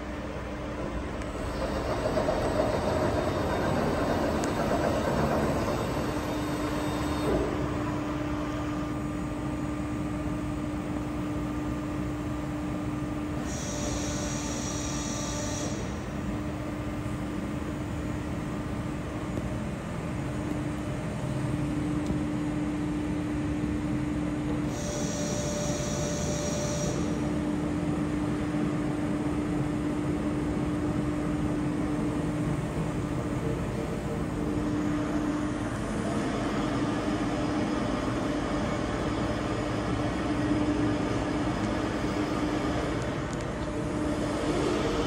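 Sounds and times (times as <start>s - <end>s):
high machine whine: 0.0s - 45.0s
milling machine hum: 0.0s - 45.0s.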